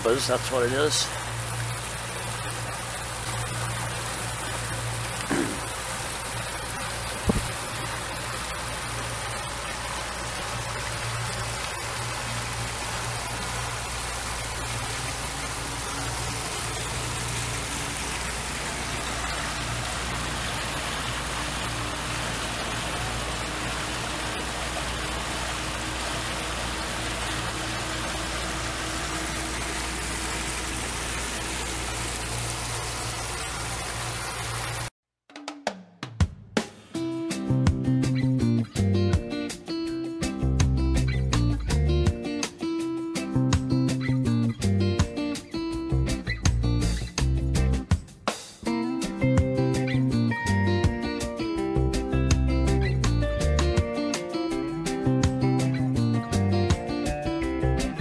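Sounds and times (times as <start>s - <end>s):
outboard motor droning: 0.0s - 34.9s
water rushing and splashing: 0.0s - 34.9s
short knock: 7.3s - 7.5s.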